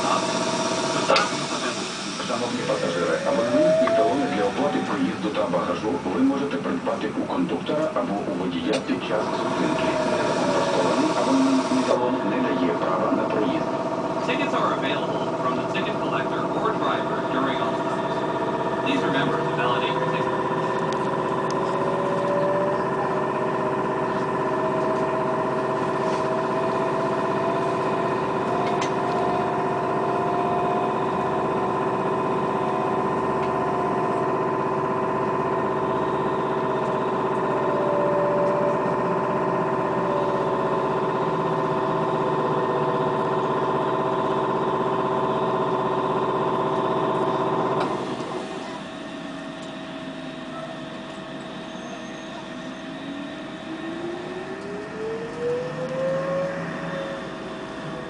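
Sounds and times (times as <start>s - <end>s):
bus running noise: 0.0s - 58.0s
electric motor whining: 2.2s - 5.8s, 9.1s - 12.0s, 25.9s - 43.4s.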